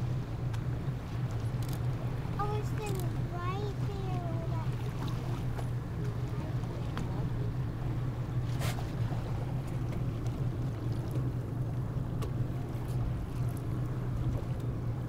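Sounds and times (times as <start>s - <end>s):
boat engine idling: 0.0s - 15.0s
water noise: 0.0s - 15.0s
wind: 0.0s - 15.0s.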